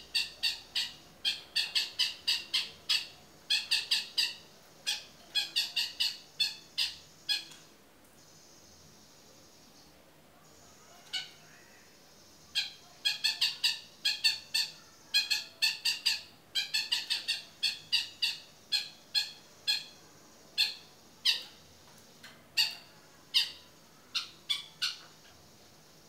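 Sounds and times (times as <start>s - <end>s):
bird giving harsh calls: 0.0s - 7.5s, 12.6s - 20.0s.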